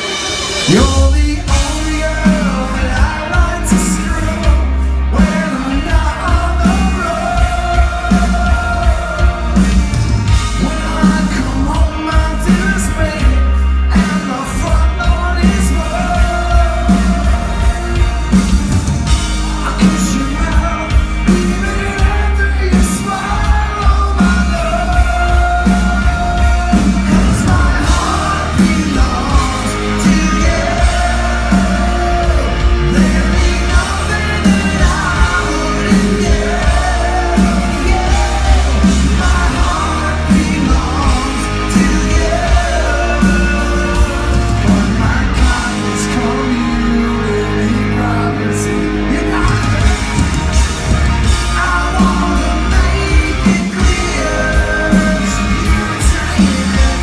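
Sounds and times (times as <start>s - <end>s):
electric guitars: 0.0s - 57.0s
person singing: 0.0s - 57.0s
steady drum beat: 0.0s - 57.0s
crowd shouting: 15.3s - 57.0s.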